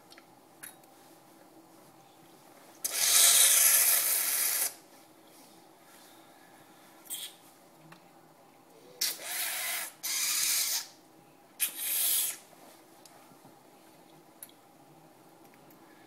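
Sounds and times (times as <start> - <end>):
air sucked through teeth: 2.8 - 4.8, 7.0 - 7.4, 11.6 - 12.4.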